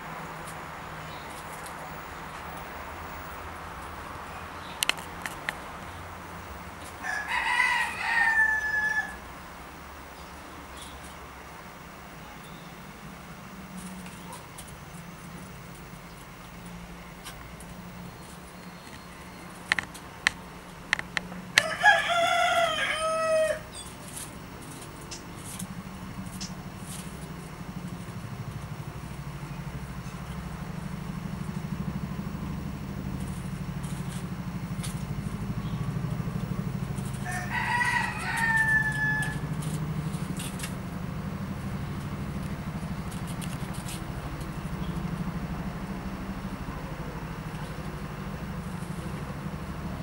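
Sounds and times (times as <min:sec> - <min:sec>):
bird calling: 0:21.6 - 0:24.2.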